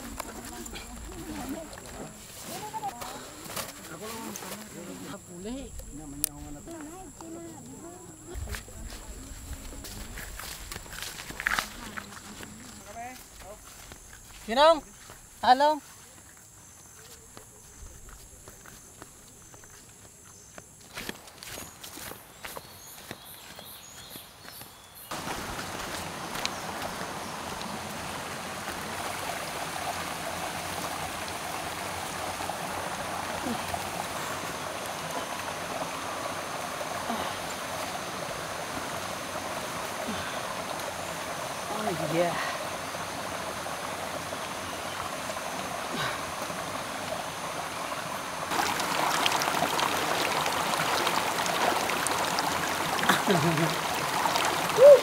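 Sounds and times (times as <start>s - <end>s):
stream rushing over stones: 0.0s - 15.9s, 25.1s - 55.0s
feet wading through water: 6.3s - 16.3s, 25.1s - 47.6s, 48.2s - 55.0s.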